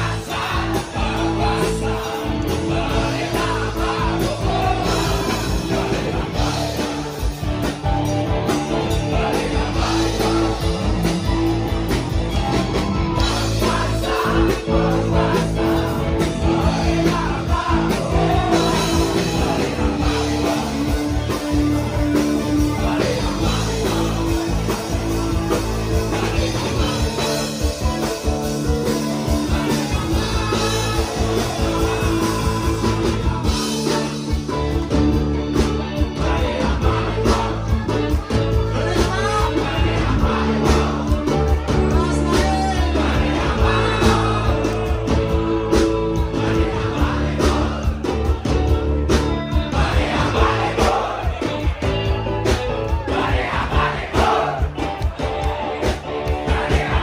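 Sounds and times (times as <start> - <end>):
drum kit: 0.0 - 57.0
electric guitar: 0.0 - 57.0.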